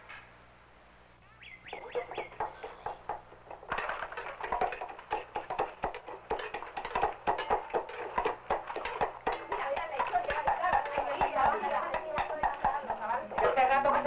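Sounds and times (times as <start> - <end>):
chickens clucking: 1.3 - 8.0.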